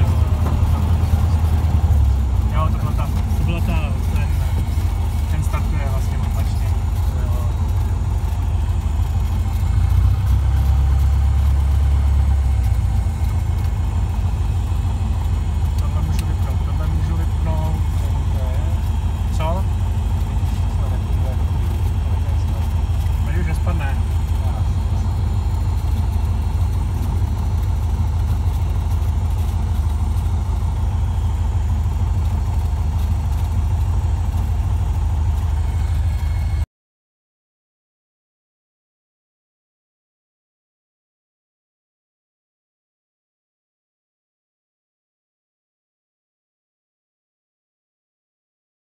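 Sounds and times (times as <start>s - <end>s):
light aircraft engine idling: 0.0s - 36.7s.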